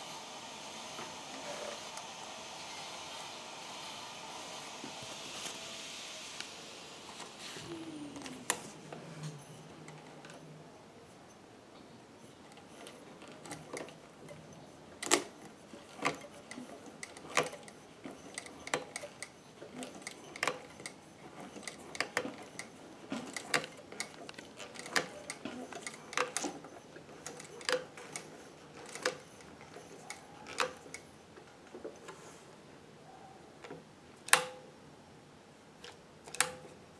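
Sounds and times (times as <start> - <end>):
sewing machine clicking: 12.4 - 31.5, 35.8 - 36.8
sewing machine ticking: 12.5 - 31.0.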